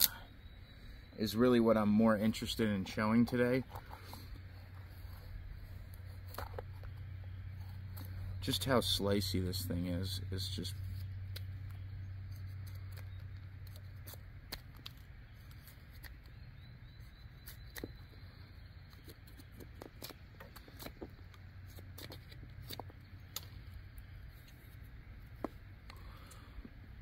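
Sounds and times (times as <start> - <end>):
faint low hum: 0.0 - 27.0.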